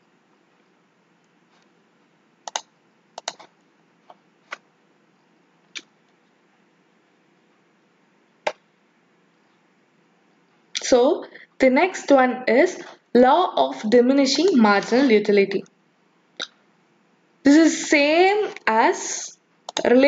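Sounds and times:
faint steady hiss: 0.0s - 20.0s
computer mouse clicks: 2.4s - 4.7s, 19.7s - 19.9s.

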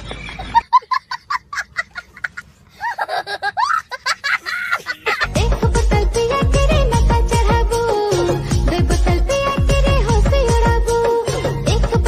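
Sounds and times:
person laughing: 0.2s - 5.3s.

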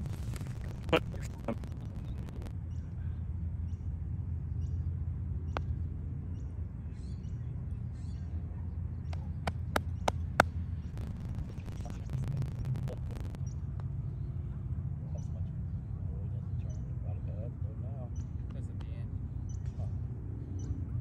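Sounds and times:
steady low rumble: 0.0s - 3.2s, 10.6s - 14.9s.

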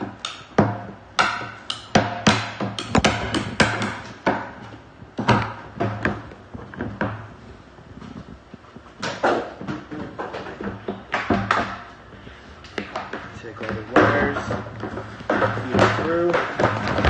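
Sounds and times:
steady low hum: 0.0s - 17.0s
knocks inside plastic tank: 0.6s - 4.5s.

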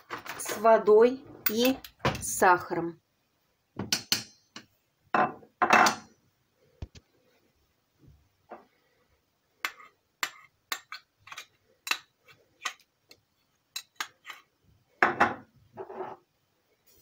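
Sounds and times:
metal spoon tapping dish and pot: 3.8s - 4.7s.

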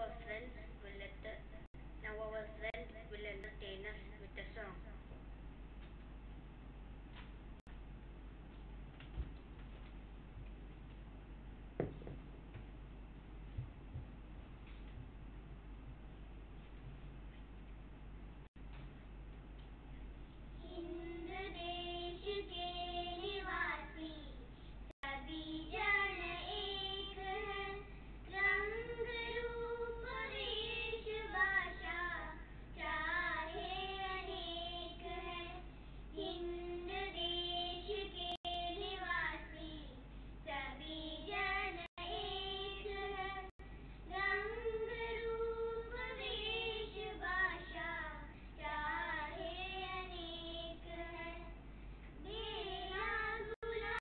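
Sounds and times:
girls singing: 20.6s - 24.2s, 25.0s - 39.8s, 40.5s - 51.6s, 52.2s - 54.0s.

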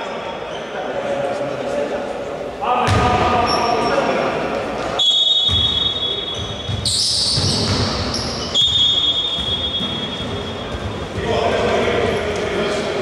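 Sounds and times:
basketball bouncing on hardwood: 6.4s - 8.1s.

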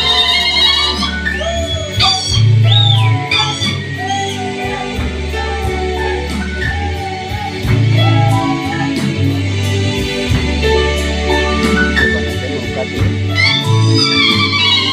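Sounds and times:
steady beat: 1.4s - 14.9s
deep sustained bass notes: 7.7s - 14.1s.

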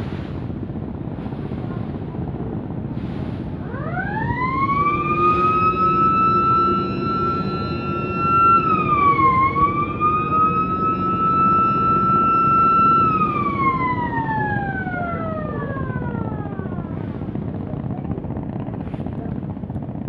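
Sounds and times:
boat engine drone: 0.0s - 20.0s
ship siren wailing: 3.6s - 17.4s.

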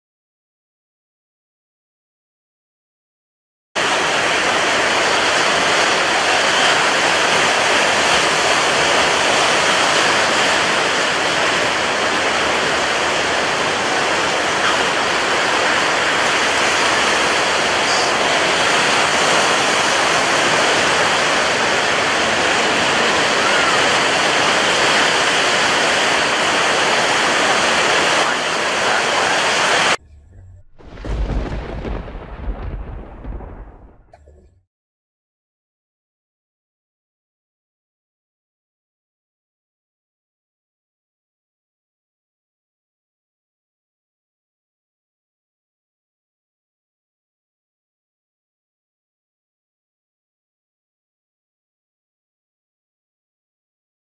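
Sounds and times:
heavy rain pouring: 3.8s - 34.6s
thunderclap rumble: 3.8s - 34.6s.

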